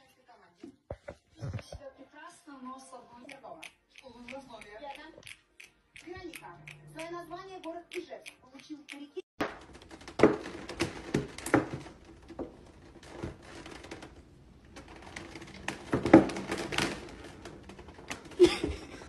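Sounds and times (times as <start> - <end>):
plastic container crackling: 9.4 - 19.0.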